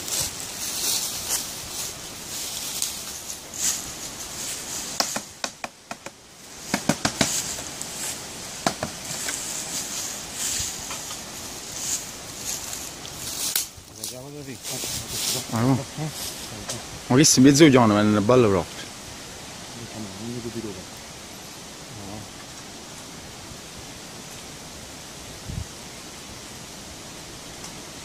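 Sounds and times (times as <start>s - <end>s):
insects hissing: 0.0s - 28.0s
sharp knocks on a box: 5.0s - 7.4s, 8.6s - 9.0s.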